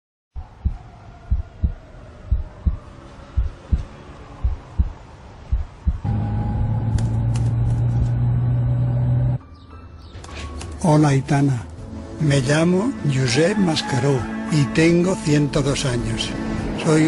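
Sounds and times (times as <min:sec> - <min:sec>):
heartbeat thumps: 0:00.4 - 0:06.7
loud low hum: 0:02.3 - 0:09.4.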